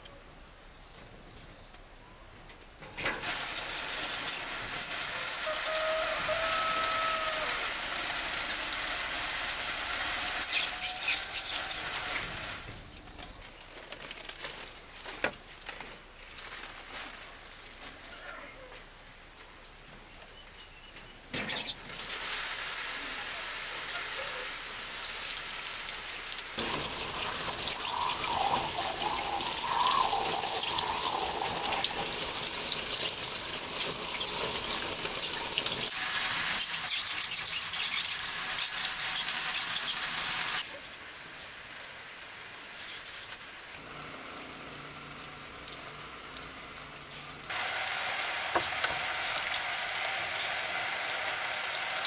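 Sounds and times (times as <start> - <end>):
shower water pouring: 3.0 - 13.0, 21.6 - 52.0.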